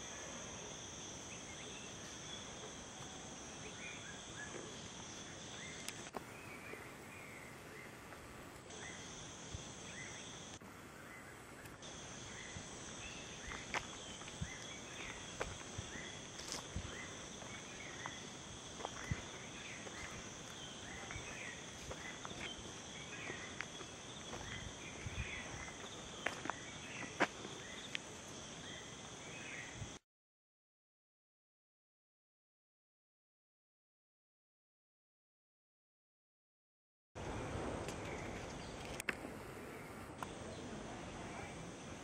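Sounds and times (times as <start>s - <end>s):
short insect chirps: 0.0s - 30.0s
high-pitched insect drone: 8.7s - 29.9s.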